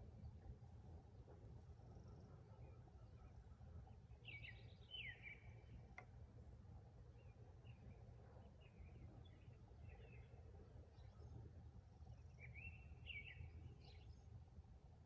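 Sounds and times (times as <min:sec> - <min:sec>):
faint low outdoor rumble: 0:00.0 - 0:15.0
faint click: 0:05.9 - 0:06.2.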